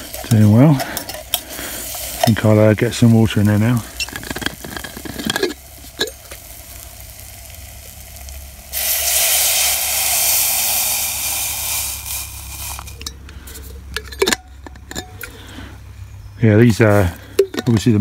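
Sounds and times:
pan sizzling faintly: 0.0 - 15.4
water poured into a hot pan: 3.3 - 13.0.

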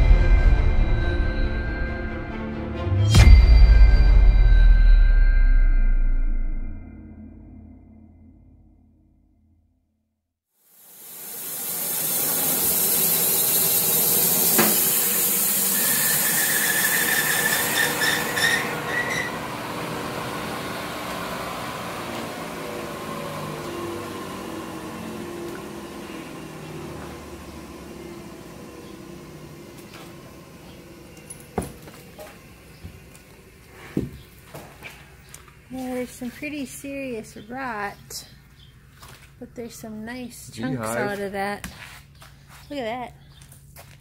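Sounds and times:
sawmill running: 10.7 - 37.2
band saw cutting log: 10.9 - 34.1
squealing saw tone: 11.0 - 19.7.

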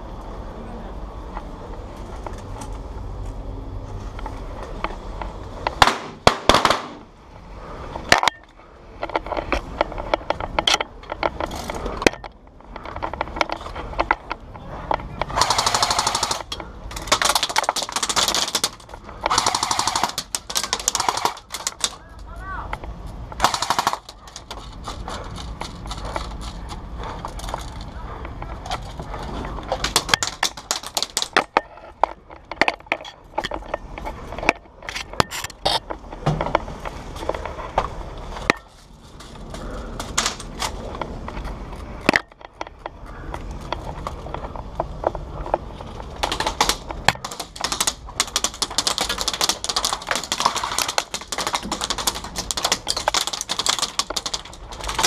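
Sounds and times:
steady low rumble: 0.0 - 55.0
airsoft guns firing: 5.8 - 7.1, 15.3 - 22.0, 23.4 - 24.6, 29.8 - 31.5, 46.2 - 55.0.

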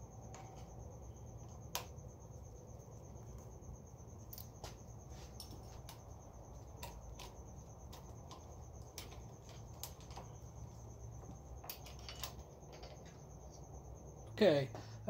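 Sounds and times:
light metallic clicks from tools: 4.2 - 13.6.

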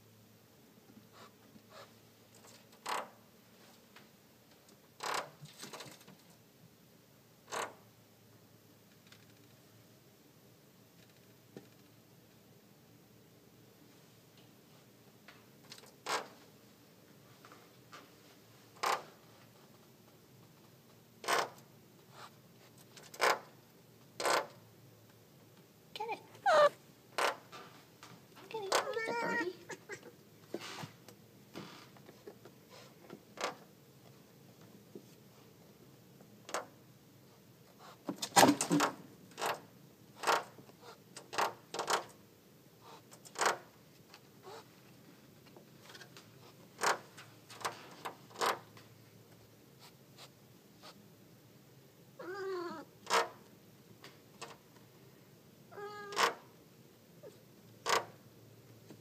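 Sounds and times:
cat meowing: 26.4 - 26.8, 28.8 - 30.1, 52.2 - 52.9, 55.7 - 56.2.

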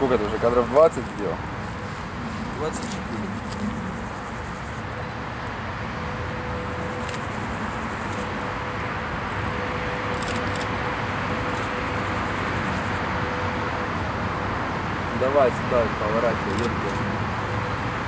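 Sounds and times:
freight train running din: 1.3 - 16.2
faint steady tone: 1.7 - 13.9.

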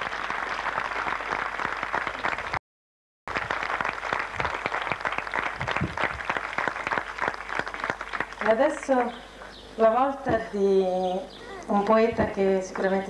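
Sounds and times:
audience applauding: 0.0 - 2.6, 3.3 - 8.6.

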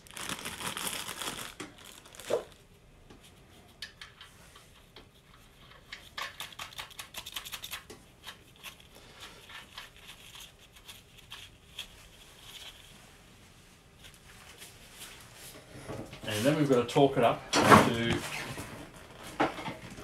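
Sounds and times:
plastic packet rustling: 0.0 - 2.7.

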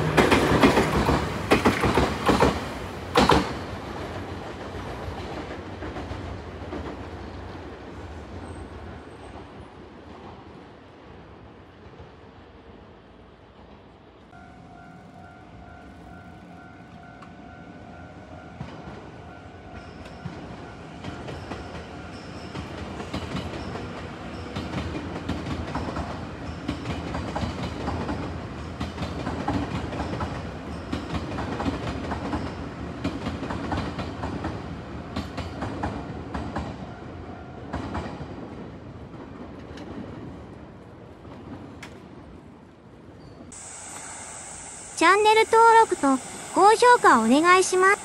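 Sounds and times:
train wheels clattering over rails: 0.0 - 10.4, 19.8 - 36.8
level crossing warning bell: 14.4 - 24.8.

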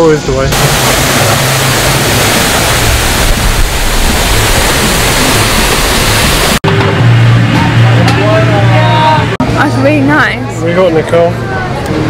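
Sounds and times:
falling water rushing: 0.0 - 6.6.

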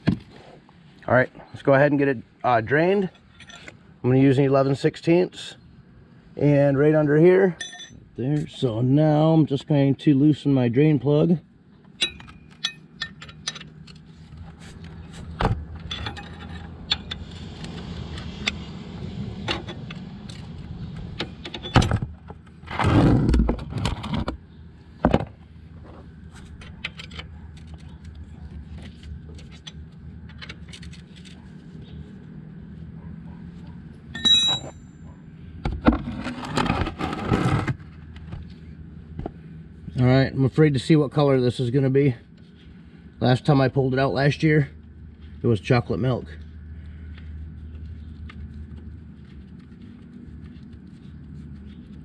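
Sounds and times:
steady low hum: 0.0 - 52.0
wrench clinking on metal: 7.6 - 8.0, 12.0 - 13.9, 34.1 - 35.0.

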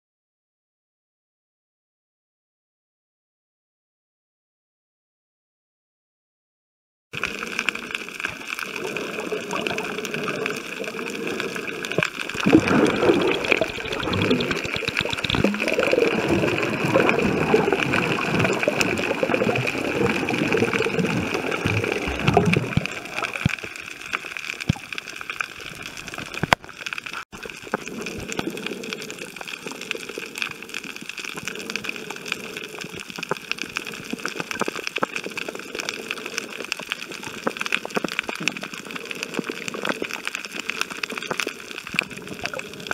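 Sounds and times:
faint clicks: 7.2 - 42.9
steady underwater hiss: 7.2 - 42.9
water gurgling and sloshing: 7.2 - 42.9.

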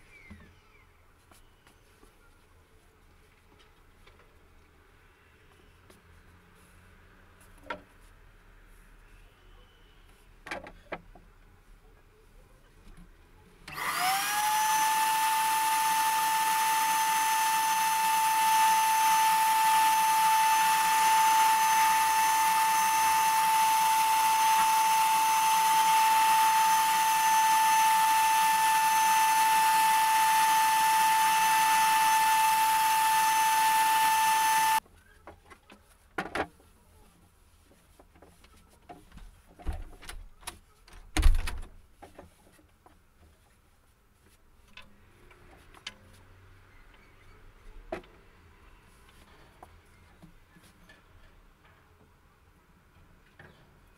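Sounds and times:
power tool motor whining: 13.7 - 34.8.

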